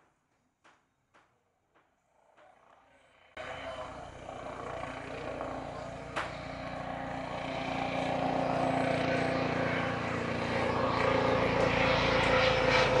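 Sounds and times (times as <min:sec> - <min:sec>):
helicopter whine: 0:02.2 - 0:13.0
helicopter rotor beat: 0:03.4 - 0:13.0.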